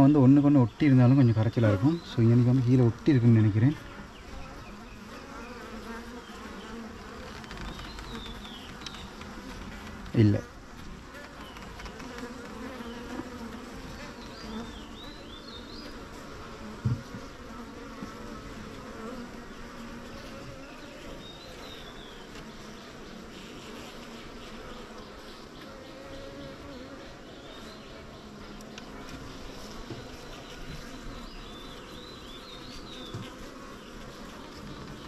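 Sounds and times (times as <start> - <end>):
bees buzzing: 0.0 - 35.0
knock: 16.8 - 17.2.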